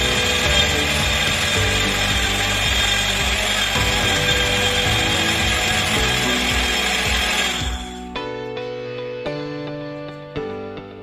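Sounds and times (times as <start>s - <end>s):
spice grinder whirring: 0.0s - 8.2s.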